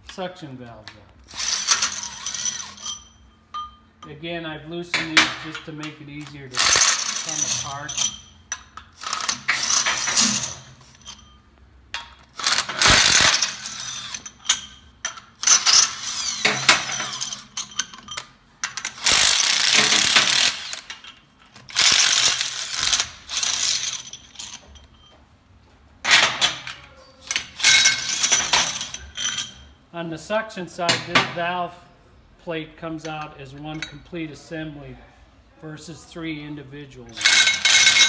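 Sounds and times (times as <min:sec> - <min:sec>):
bolts clicking and clinking: 0:00.0 - 0:04.2, 0:04.9 - 0:25.3, 0:26.0 - 0:29.7, 0:33.0 - 0:34.1, 0:36.8 - 0:38.0
cordless power driver running: 0:12.4 - 0:14.2, 0:21.7 - 0:23.6.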